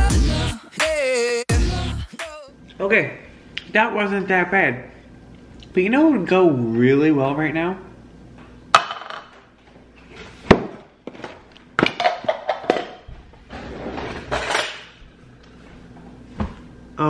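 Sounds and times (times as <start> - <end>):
cartons set down on countertop: 10.4 - 13.0.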